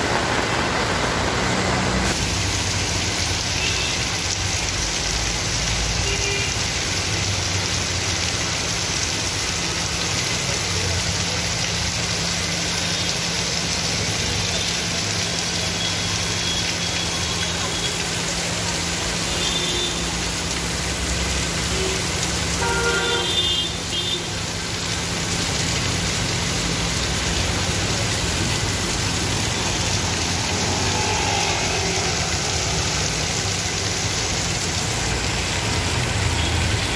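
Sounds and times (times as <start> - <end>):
passing vehicle engines: 0.0 - 2.2, 25.6 - 36.9
heavy rain on wet street: 0.0 - 36.9.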